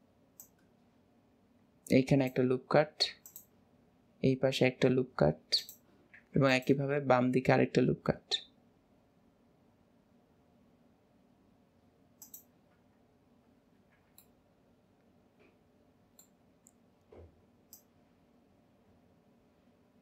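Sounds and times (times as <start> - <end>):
faint room hiss: 0.0 - 20.0
mouse buttons clicking: 5.6 - 5.8, 12.2 - 12.5.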